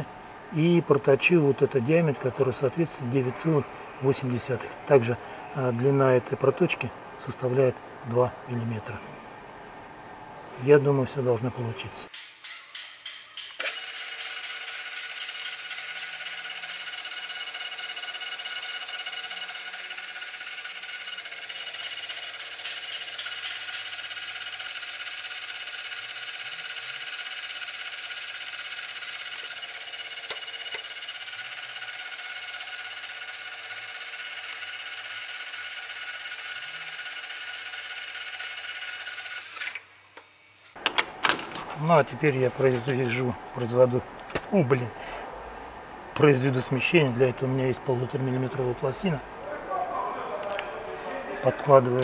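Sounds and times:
metal lathe motor whining: 13.6s - 39.8s.

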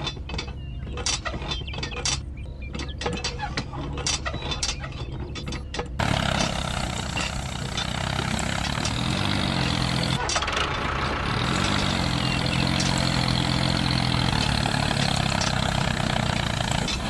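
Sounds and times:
tractor engine: 5.4s - 17.0s.

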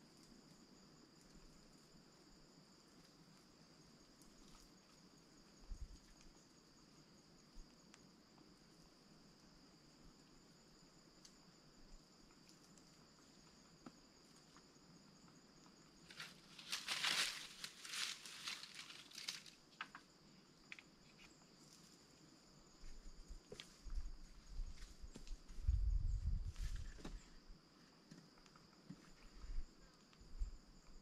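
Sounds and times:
insects droning: 0.0s - 31.0s
branch shaken rustling leaves: 16.1s - 19.6s
twigs clicking and snapping: 16.1s - 20.0s.

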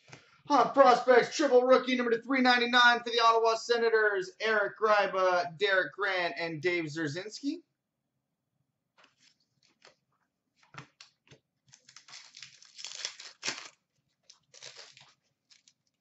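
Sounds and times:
wrapper tearing and crinkling: 11.7s - 16.0s.

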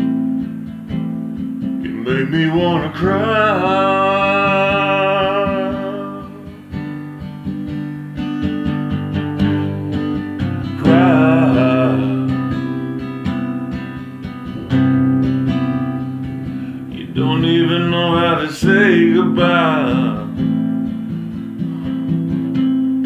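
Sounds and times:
acoustic guitar strummed and picked: 0.0s - 23.0s
man singing: 1.8s - 6.7s, 10.6s - 13.1s, 16.9s - 20.5s.

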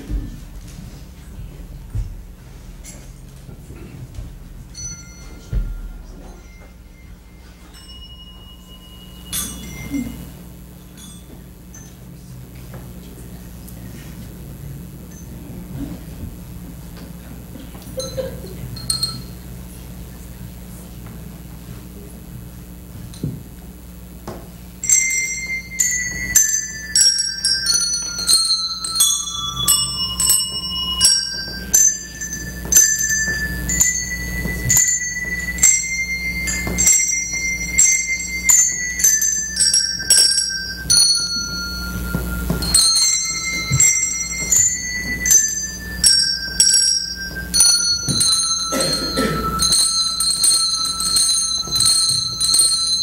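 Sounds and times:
handbells playing a melody: 4.1s - 13.1s, 18.0s - 20.4s, 24.8s - 53.0s.

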